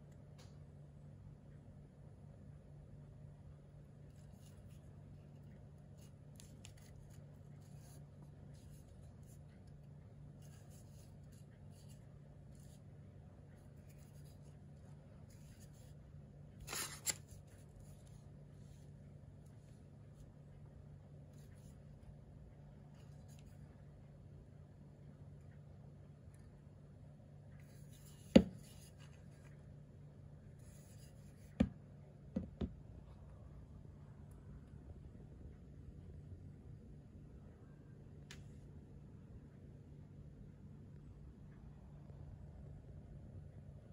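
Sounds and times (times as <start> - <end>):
low steady hum: 0.0 - 43.9
soft rubbing of knife in hand: 4.1 - 12.9, 13.5 - 16.0, 30.5 - 31.6.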